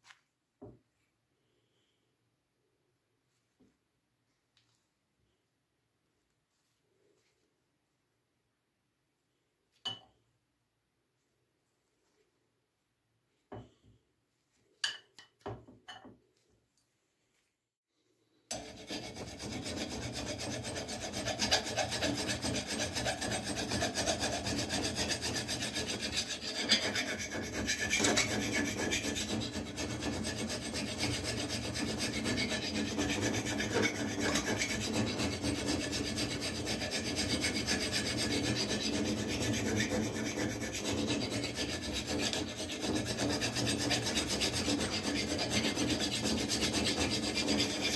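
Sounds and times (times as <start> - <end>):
file rasping on steel blade: 18.5 - 47.9.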